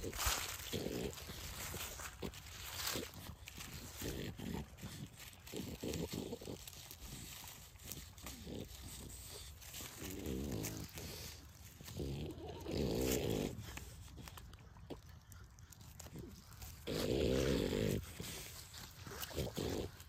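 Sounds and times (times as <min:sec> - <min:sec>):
puppy grunting: 0:00.0 - 0:20.0
puppy rustling through dry leaves: 0:00.0 - 0:20.0.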